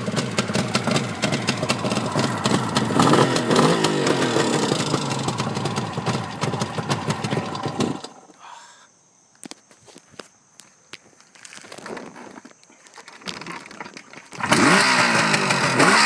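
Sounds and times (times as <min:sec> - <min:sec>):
motorcycle engine idling: 0:00.0 - 0:08.3.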